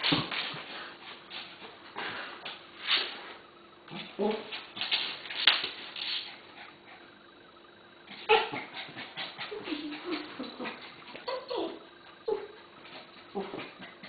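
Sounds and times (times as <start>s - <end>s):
dogs growling and whining: 8.0s - 14.0s.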